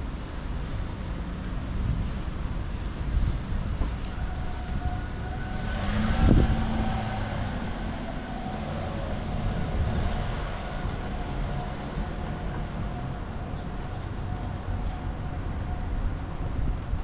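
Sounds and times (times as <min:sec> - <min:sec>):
street traffic rumble: 0:00.0 - 0:17.0
vehicle passing close: 0:05.0 - 0:11.9.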